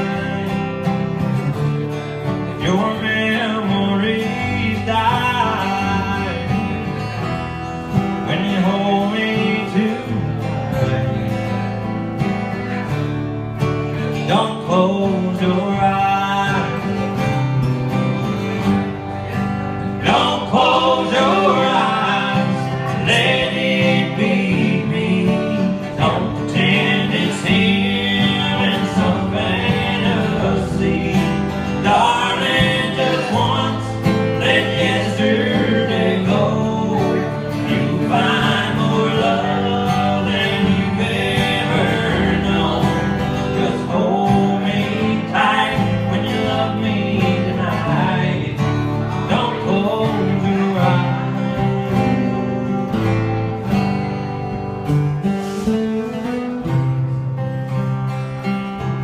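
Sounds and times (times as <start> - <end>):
man singing: 0.0 - 0.9, 2.5 - 11.6, 14.0 - 17.5, 19.3 - 52.9
guitars strummed and picked: 0.0 - 59.0.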